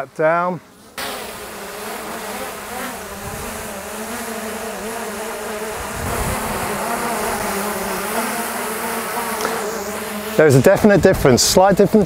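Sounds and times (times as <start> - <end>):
wind rumble on microphone: 3.2 - 3.6, 5.7 - 7.4.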